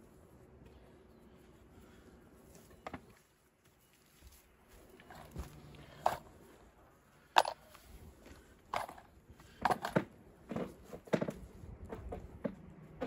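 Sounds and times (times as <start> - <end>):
wooden knocks and clunks: 8.8 - 13.0.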